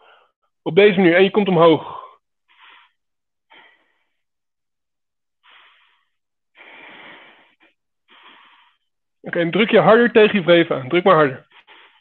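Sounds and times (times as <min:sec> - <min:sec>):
man breathing: 0:00.0 - 0:00.5, 0:01.8 - 0:04.4, 0:05.4 - 0:09.0, 0:11.6 - 0:12.0.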